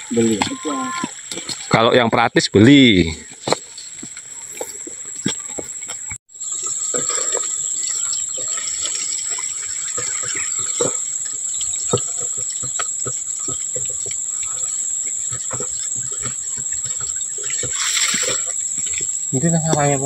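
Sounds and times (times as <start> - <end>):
high-pitched insect drone: 4.6 - 20.0.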